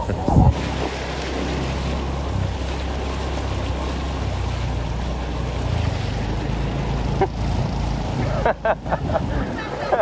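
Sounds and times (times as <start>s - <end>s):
water rushing and splashing: 0.0s - 10.0s
scooter engine running: 2.9s - 9.9s.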